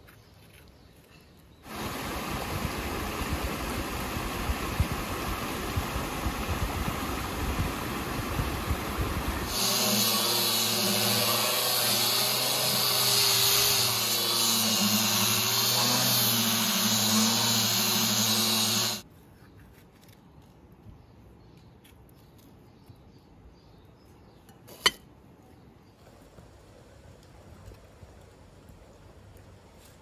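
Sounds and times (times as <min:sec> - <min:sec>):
angle grinder sanding wood: 0:09.3 - 0:19.0.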